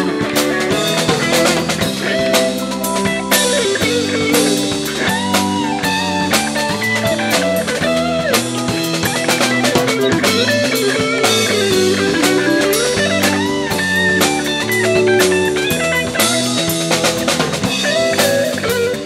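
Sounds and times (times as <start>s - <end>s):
drum kit beat: 0.0s - 19.0s
jazz-funk band playing live: 0.0s - 19.0s
pitch-bending lead line: 0.3s - 19.0s.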